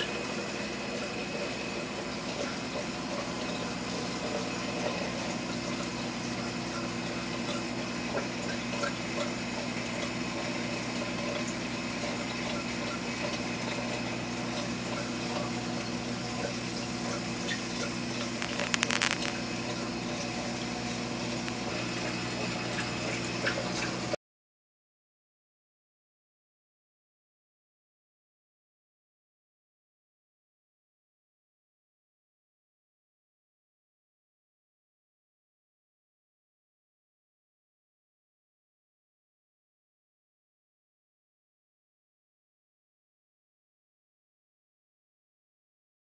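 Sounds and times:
pump motor hum: 0.0s - 24.2s
burst of clicks: 18.4s - 19.4s.

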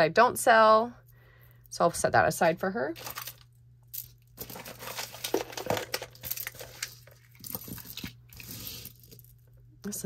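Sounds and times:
crinkly rustling: 3.0s - 9.3s.

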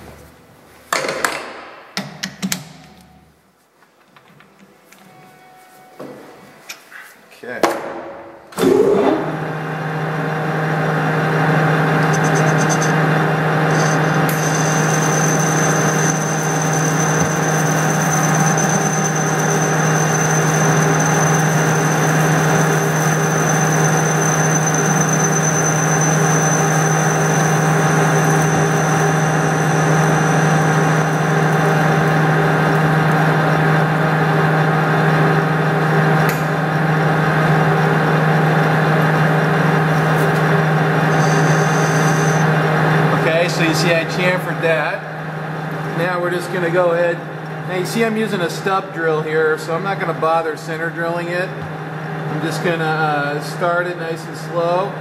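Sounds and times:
metal lathe humming: 10.2s - 34.0s, 40.7s - 43.2s
thin high whine: 12.0s - 32.8s, 40.9s - 42.6s.

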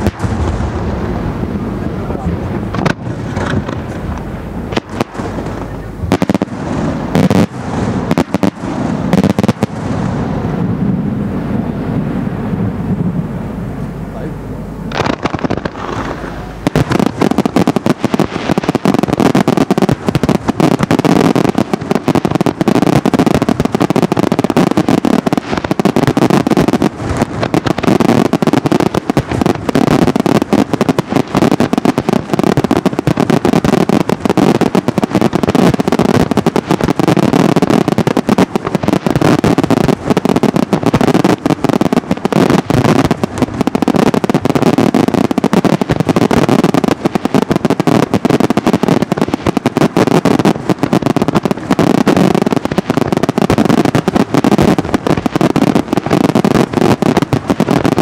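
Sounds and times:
fireworks barrage of bangs: 0.0s - 13.4s, 14.8s - 58.0s.

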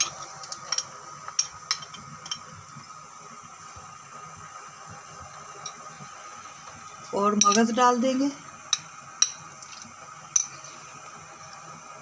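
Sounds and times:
low steady background hiss: 0.0s - 12.0s
ceramic dish clinking on steel pot: 7.4s - 7.8s.

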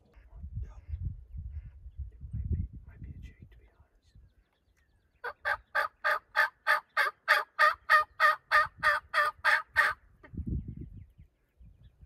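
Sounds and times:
turkey yelps: 5.2s - 10.0s.

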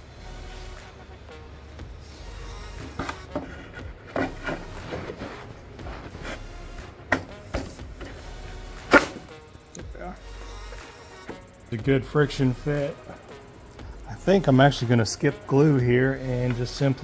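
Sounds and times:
faint background music: 0.0s - 17.0s
wood scraping: 2.7s - 9.3s
wood handling sounds: 2.8s - 6.4s, 7.1s - 8.2s.

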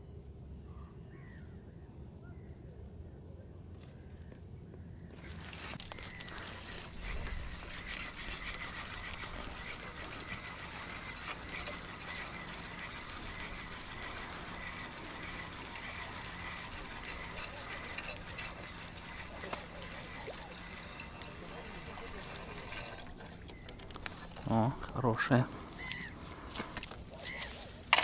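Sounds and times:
fishing reel whirring and ticking: 5.4s - 24.6s, 25.6s - 28.0s.

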